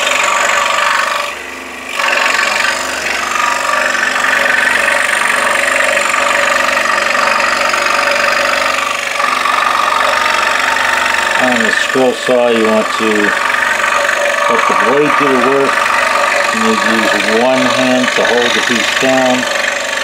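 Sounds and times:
scroll saw cutting wood: 0:00.0 - 0:20.0.

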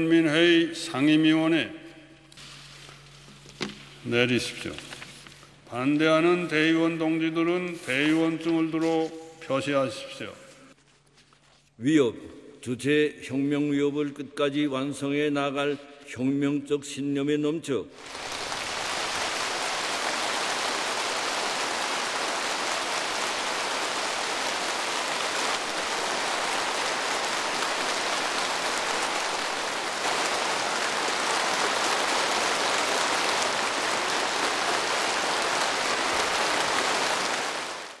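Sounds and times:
large crowd applauding: 0:18.0 - 0:38.0.

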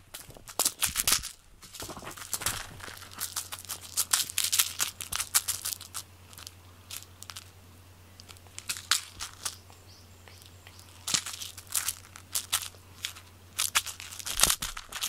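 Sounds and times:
faint low hum: 0:00.0 - 0:15.0
cat clawing at cloth: 0:00.2 - 0:04.3.

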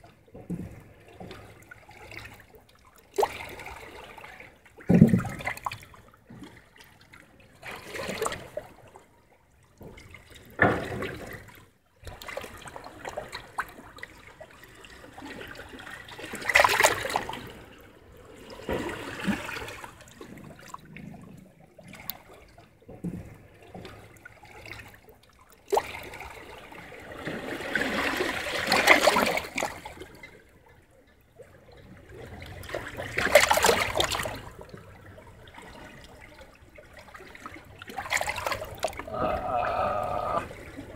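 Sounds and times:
small waves washing over rocks: 0:15.0 - 0:17.7, 0:25.7 - 0:30.0, 0:32.5 - 0:34.6.

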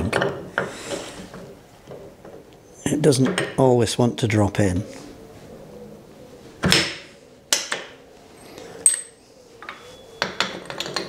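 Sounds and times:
metal clinks and knocks: 0:08.8 - 0:11.0.

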